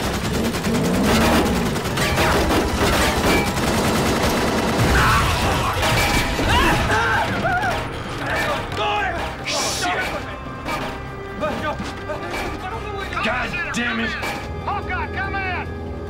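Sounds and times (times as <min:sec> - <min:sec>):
rifle and machine-gun fire: 0:00.0 - 0:06.5
film score music: 0:00.0 - 0:16.0.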